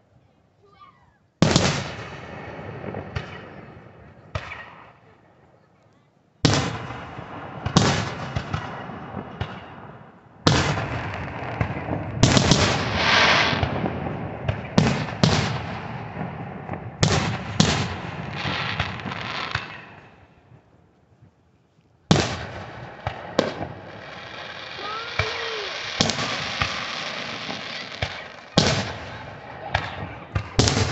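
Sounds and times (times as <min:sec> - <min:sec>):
firework bangs echoing: 0:06.5 - 0:20.1, 0:22.1 - 0:30.9
firework hissing crackle: 0:12.4 - 0:13.7, 0:18.3 - 0:20.0, 0:22.9 - 0:29.2.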